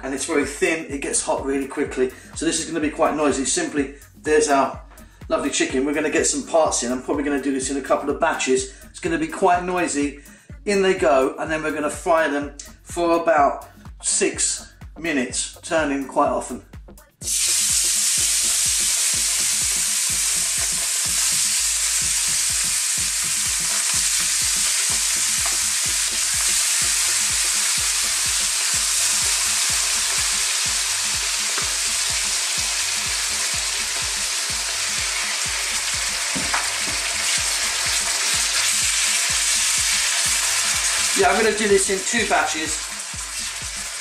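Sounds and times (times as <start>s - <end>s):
chicken sizzling in oil: 17.2s - 44.0s.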